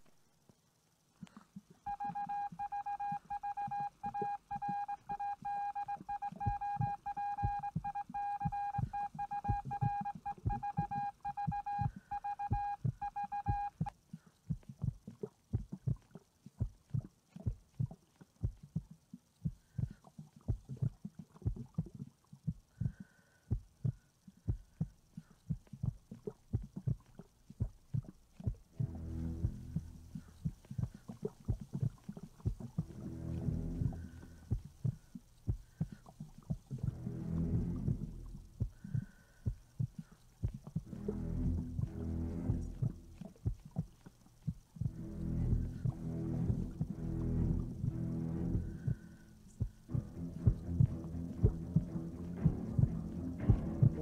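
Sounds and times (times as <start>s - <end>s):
electronic tone: 1.9s - 13.9s.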